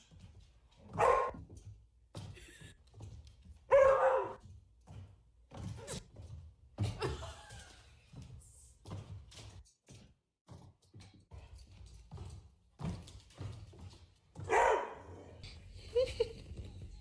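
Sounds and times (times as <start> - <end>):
dog barking: 0.9 - 1.4, 3.7 - 4.4, 14.4 - 15.4.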